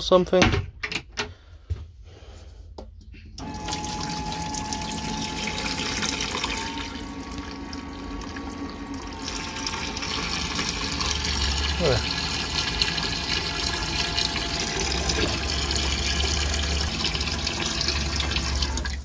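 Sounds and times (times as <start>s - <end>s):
electric pump humming: 3.4s - 19.0s
faucet water running into sink: 3.4s - 19.0s.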